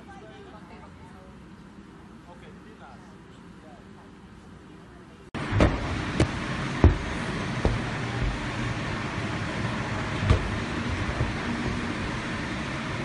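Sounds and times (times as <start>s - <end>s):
steady background rumble: 0.0s - 13.0s
football kick thuds: 5.5s - 8.6s, 10.2s - 12.0s.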